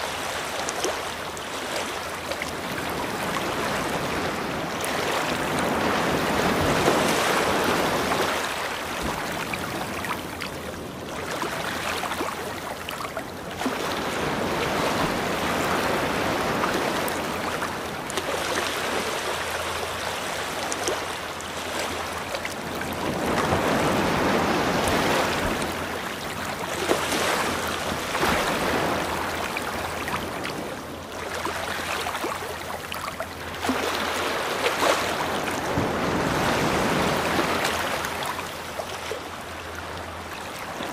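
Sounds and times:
ocean waves rushing: 0.0 - 40.9.

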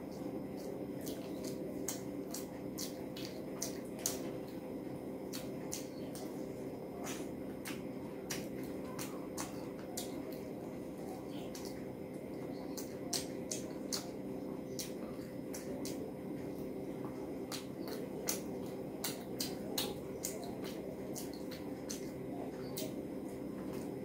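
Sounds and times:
fingers squishing food: 0.0 - 24.0
chewing mouth smacks: 0.1 - 4.6, 5.3 - 6.4, 7.0 - 10.5, 11.2 - 11.9, 12.6 - 16.0, 17.4 - 23.0.

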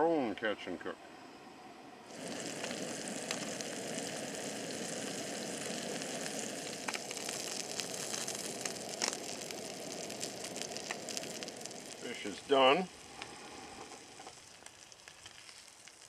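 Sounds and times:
fat spitting pops: 2.1 - 12.3
fish sizzling in a frying pan: 2.1 - 16.0.

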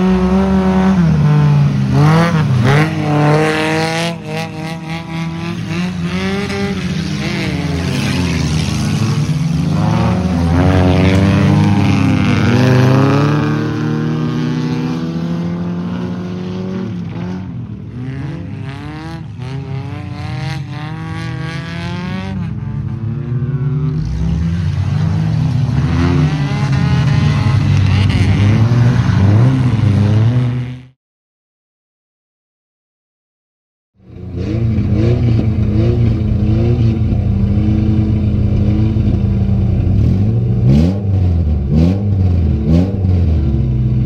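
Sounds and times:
race car engines revving: 0.0 - 31.0, 34.1 - 44.0.

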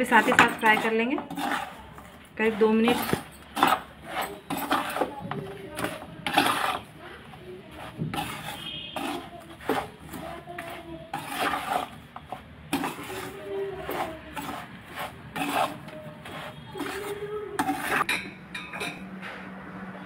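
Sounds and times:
metal spatula scraping pan: 0.0 - 19.0.

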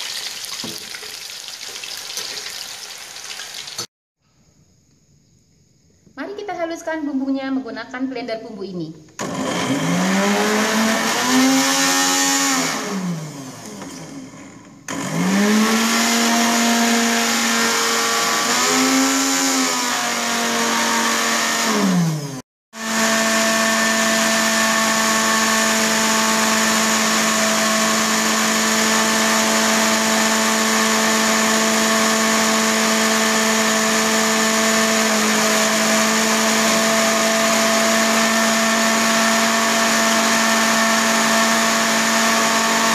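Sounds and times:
electric blender whining: 9.2 - 42.9.

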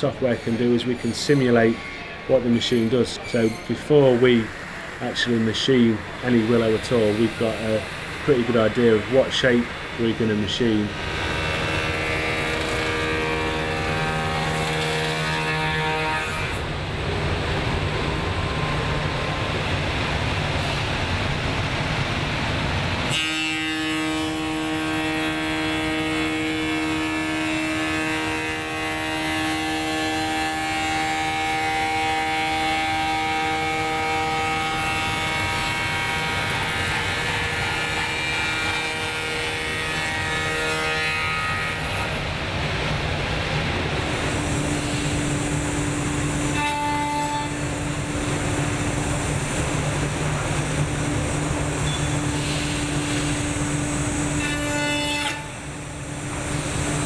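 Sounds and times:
cutter machining wood: 0.0 - 16.7, 23.1 - 42.2
machine spindle whine: 0.0 - 57.0.

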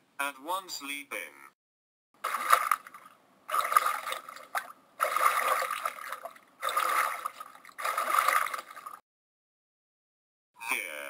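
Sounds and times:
water splashing: 2.2 - 9.0.

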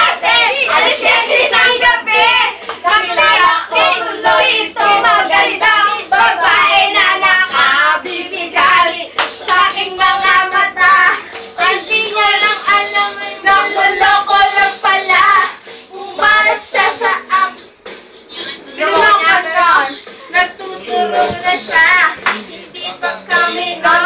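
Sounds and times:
women singing together: 0.0 - 17.7, 18.4 - 24.0
hand claps: 2.6 - 3.0, 7.5 - 10.4, 22.1 - 22.6.

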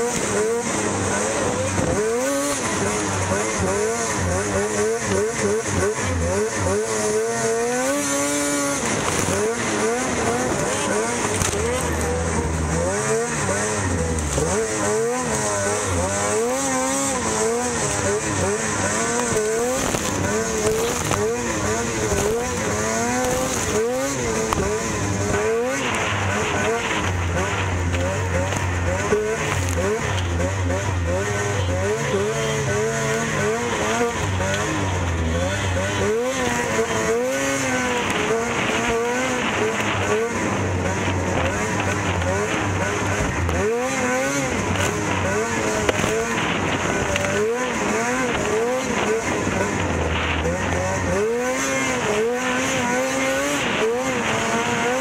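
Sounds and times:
snowmobile engine revving: 0.0 - 55.0.

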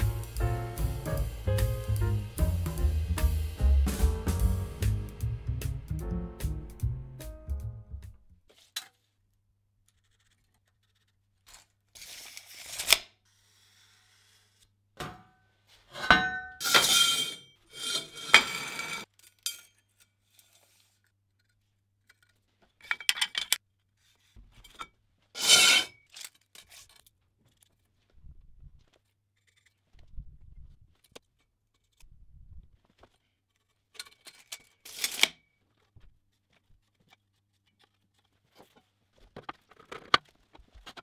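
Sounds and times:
metal scraping and clinking: 15.9 - 20.6, 24.5 - 27.1, 33.5 - 35.4.

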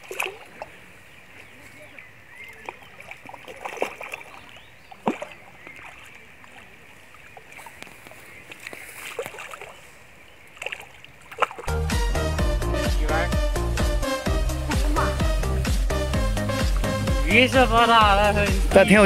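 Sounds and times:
fish thrashing and splashing: 0.0 - 0.7, 2.5 - 9.8, 10.4 - 11.7.

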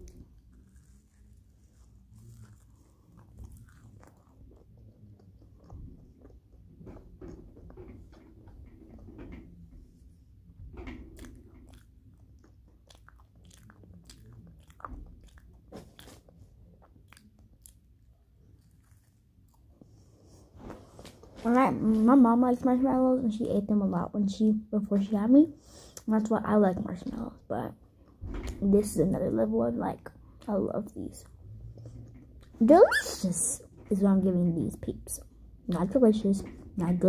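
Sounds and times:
person chewing candy: 0.0 - 7.8, 11.1 - 19.9.

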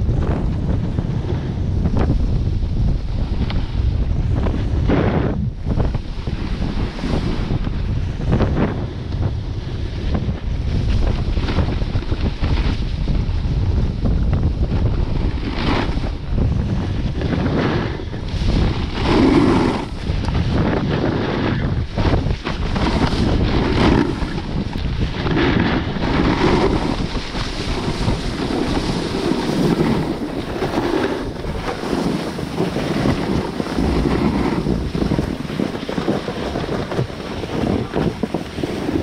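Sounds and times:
snowboard scraping over snow: 0.0 - 39.0
wind buffeting microphone: 0.0 - 39.0.

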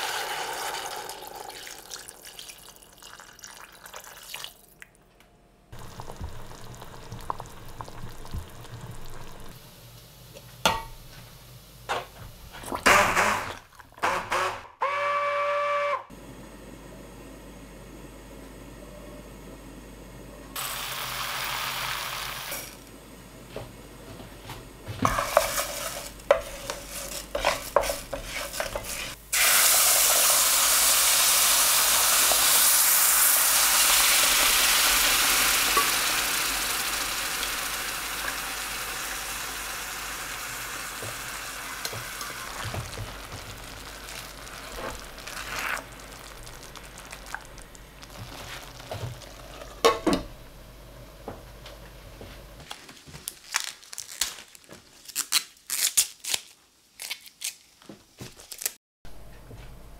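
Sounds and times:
loud sizzle in hot pan: 20.6 - 22.8, 25.0 - 49.8
simmering hiss: 20.6 - 23.3
wooden spoon stirring rice in pan: 25.0 - 29.2.

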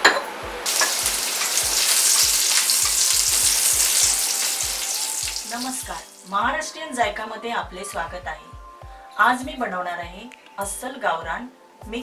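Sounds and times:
frying sizzle: 0.0 - 6.5.

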